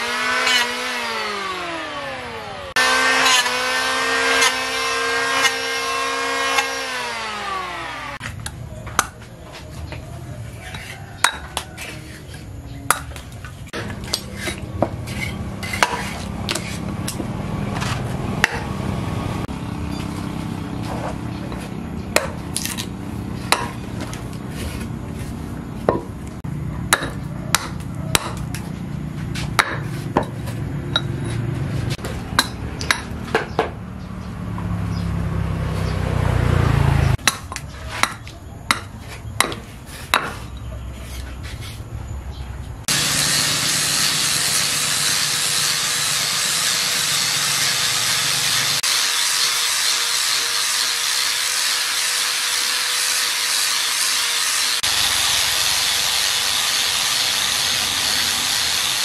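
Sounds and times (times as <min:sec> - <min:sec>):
hatchet chopping wood: 0:00.0 - 0:01.5, 0:02.8 - 0:07.6, 0:08.2 - 0:09.2, 0:12.9 - 0:18.8, 0:21.5 - 0:24.4, 0:25.8 - 0:26.2, 0:26.8 - 0:28.8, 0:29.4 - 0:31.1, 0:32.0 - 0:33.8, 0:37.2 - 0:40.5.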